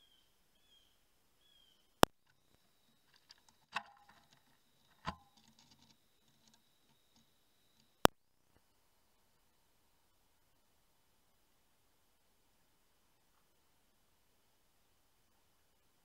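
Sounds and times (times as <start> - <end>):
faint ticks: 2.0 - 8.9.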